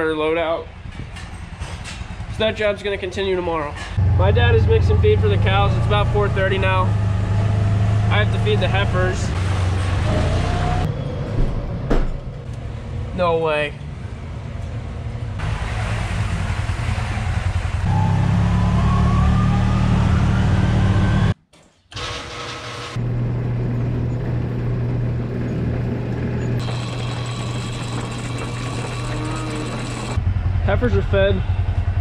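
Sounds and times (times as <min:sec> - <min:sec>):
farm machinery engines running: 0:03.7 - 0:07.0, 0:08.0 - 0:10.7, 0:21.9 - 0:31.6
rising machine whine: 0:04.0 - 0:12.6, 0:15.4 - 0:21.4, 0:23.0 - 0:30.4.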